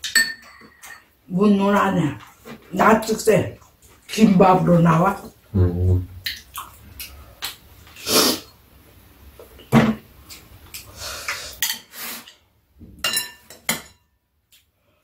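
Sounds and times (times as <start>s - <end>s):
utensils clinking against bowls: 0.0s - 1.2s.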